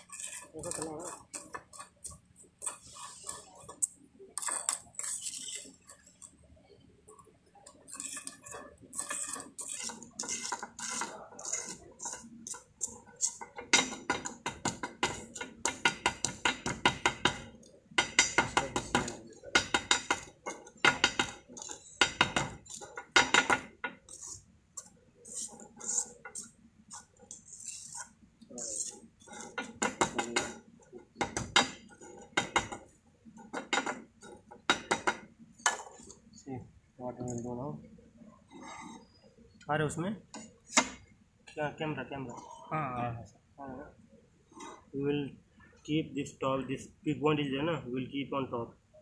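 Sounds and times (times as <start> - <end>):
spatula scraping metal cup: 0.0 - 6.3, 7.7 - 14.4, 22.6 - 30.5, 38.5 - 39.2.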